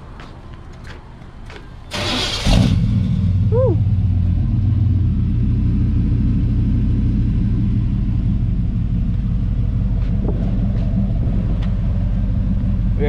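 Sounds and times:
pickup engine idling: 2.1 - 13.0.

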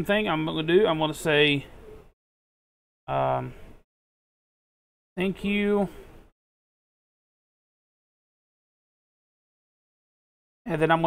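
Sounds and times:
man speaking: 0.0 - 1.7, 3.1 - 3.6, 5.2 - 6.0, 10.7 - 11.0.

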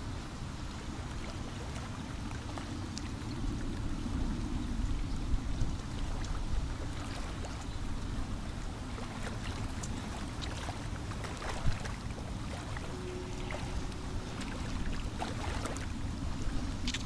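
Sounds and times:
small waves lapping: 0.0 - 17.0
small splashes and ticks: 0.2 - 17.0
wind buffeting microphone: 3.1 - 17.0.

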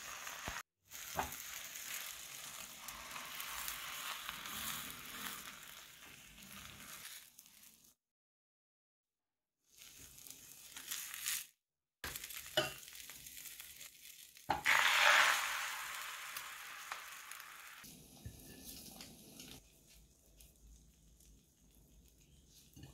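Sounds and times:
egg sizzling in hot pan: 0.0 - 8.0, 9.7 - 22.9.

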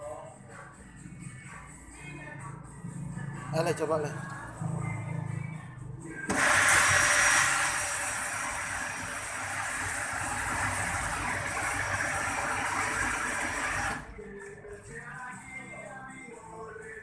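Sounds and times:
water spraying inside machine: 6.3 - 14.1.

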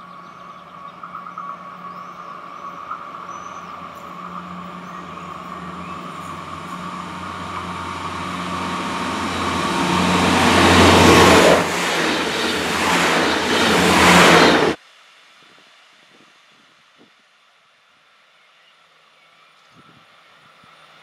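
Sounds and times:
diesel train engine hum: 0.0 - 14.8
train wheels on rails: 0.0 - 14.8.

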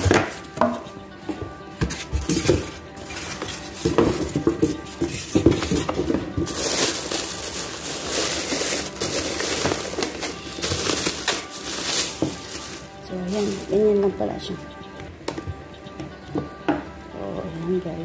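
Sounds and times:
plastic bag crinkling: 2.0 - 14.5.

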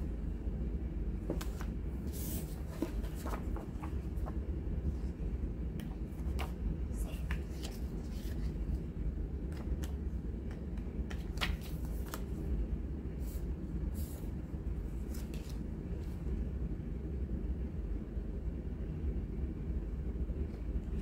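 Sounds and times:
steady low hum: 0.0 - 21.0
paper and card rustling: 1.2 - 4.4, 5.8 - 8.8, 9.5 - 12.5, 14.9 - 16.1.

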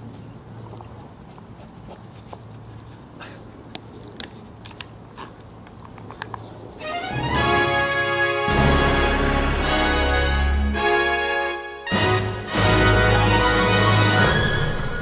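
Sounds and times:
light clicks and crunches: 0.0 - 6.7
music with rising notes: 6.8 - 15.0.

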